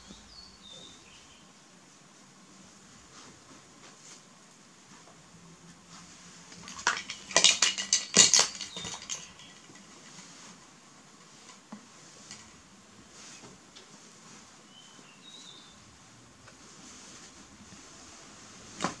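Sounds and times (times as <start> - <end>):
plastic toys clattering: 6.5 - 10.2.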